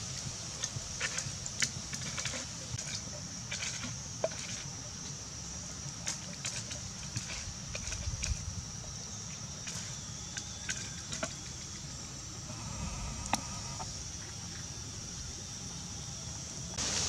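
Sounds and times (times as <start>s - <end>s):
steady high hiss: 0.0s - 6.2s, 8.5s - 17.0s
low wind rumble: 10.6s - 16.8s.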